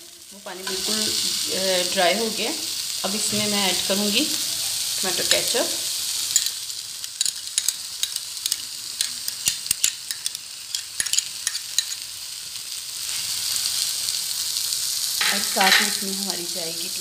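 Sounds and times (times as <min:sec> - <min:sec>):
onion and tomato sizzling in pan: 0:00.0 - 0:17.0
metal spoon clinking and scraping: 0:06.3 - 0:06.6, 0:07.2 - 0:12.0, 0:15.2 - 0:16.1.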